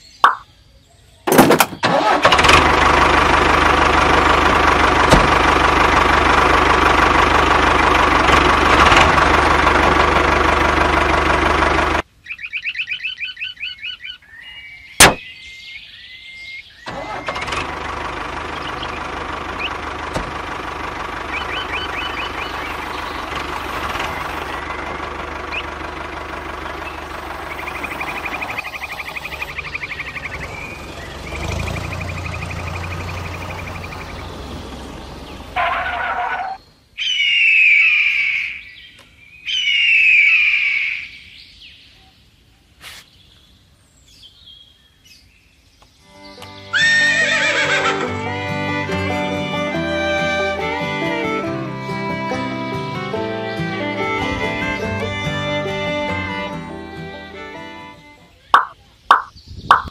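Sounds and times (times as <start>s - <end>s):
toy tractor electronic engine sound: 1.8s - 12.0s, 16.9s - 36.6s, 46.4s - 59.9s
rapid high warbling: 58.6s - 59.9s.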